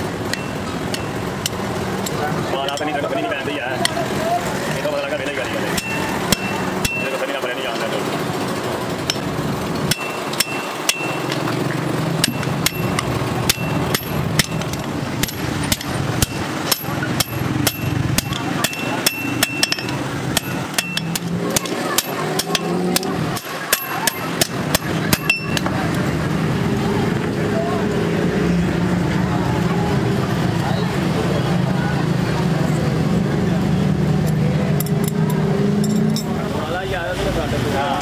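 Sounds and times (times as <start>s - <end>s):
hammer striking steel on anvil: 0.2s - 3.0s, 5.4s - 7.4s, 9.0s - 25.9s.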